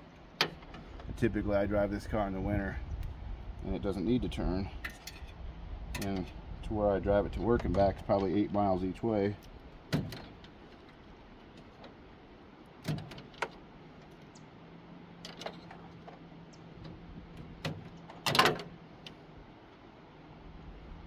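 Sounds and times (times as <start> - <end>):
hands handling electrical wire: 9.4 - 12.0, 12.7 - 14.3, 15.2 - 19.2.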